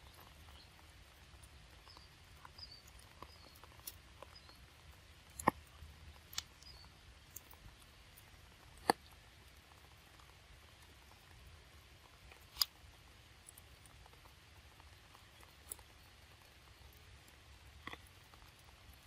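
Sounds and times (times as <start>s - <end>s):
faint bird chirps: 0.0s - 5.4s, 6.3s - 7.9s.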